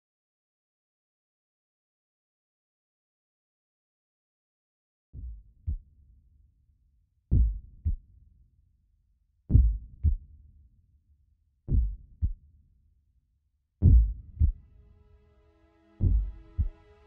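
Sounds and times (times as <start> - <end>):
deep heartbeat thuds: 7.3 - 8.0, 9.5 - 10.2, 11.7 - 12.4, 13.8 - 14.6, 16.0 - 16.7.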